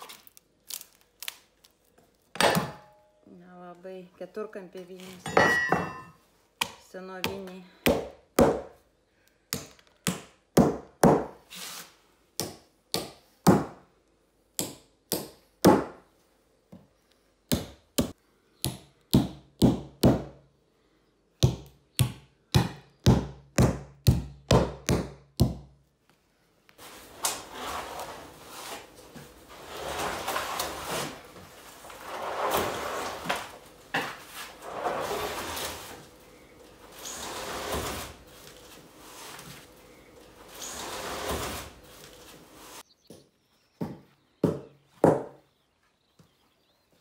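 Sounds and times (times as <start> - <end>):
scraping rustle: 26.8 - 42.8.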